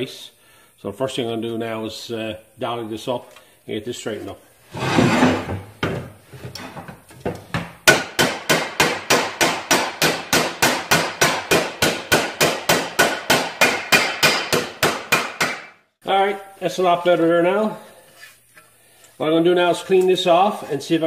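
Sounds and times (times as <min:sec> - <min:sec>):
hammer striking steel panel: 0:07.9 - 0:15.8.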